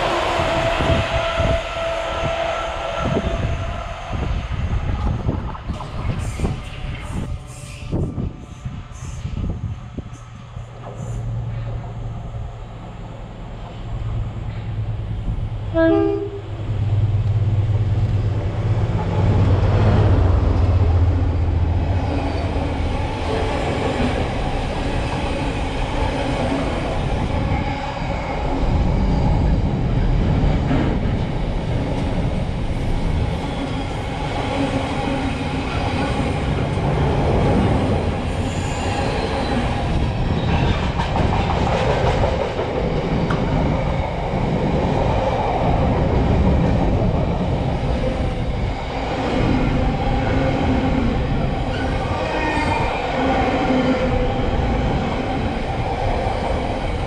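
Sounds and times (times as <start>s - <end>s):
train rumbling past: 0.0s - 57.0s
train horn: 15.7s - 16.6s.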